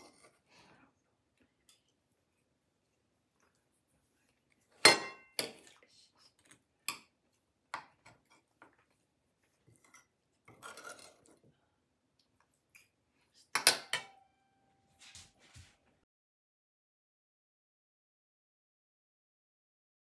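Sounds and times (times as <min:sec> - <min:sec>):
cutlery and dishes clinking: 0:04.8 - 0:05.8, 0:09.7 - 0:11.4, 0:13.5 - 0:15.7.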